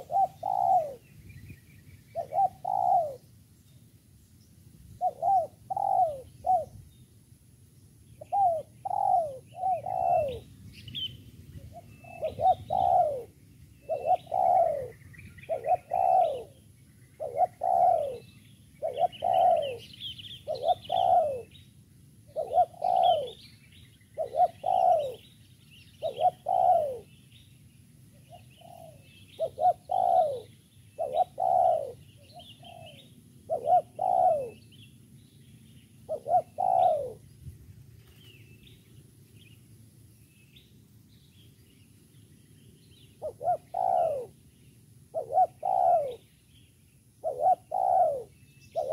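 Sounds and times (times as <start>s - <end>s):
dove cooing: 0.0s - 1.1s, 2.1s - 3.3s, 5.0s - 6.8s, 8.2s - 21.6s, 22.3s - 23.5s, 24.2s - 25.4s, 26.0s - 27.2s, 28.1s - 34.8s, 36.0s - 37.2s, 43.1s - 44.4s, 45.1s - 46.3s, 47.2s - 48.9s
small birds chirping: 0.0s - 48.9s.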